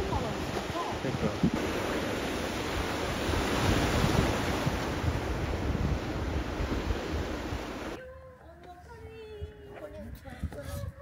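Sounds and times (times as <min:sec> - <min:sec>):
sea waves washing on shore: 0:00.0 - 0:08.0
wind buffeting microphone: 0:00.0 - 0:08.0, 0:08.8 - 0:11.0.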